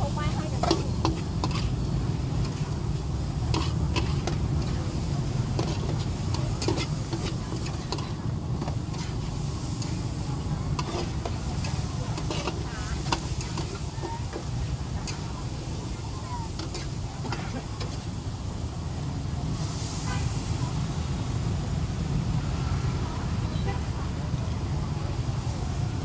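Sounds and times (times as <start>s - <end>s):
metal spatula scraping wok: 0.0s - 18.2s
food sizzling: 0.0s - 23.3s.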